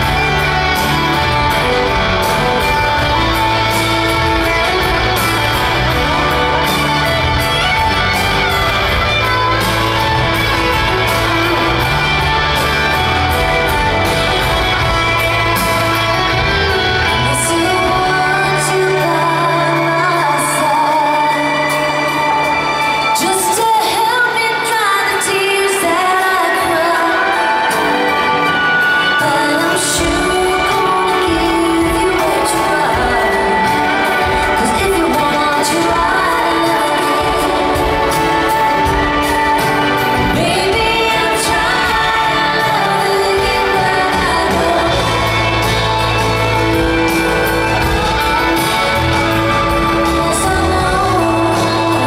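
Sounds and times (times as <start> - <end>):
live pop-rock band playing: 0.0 - 52.0
person singing: 0.0 - 52.0.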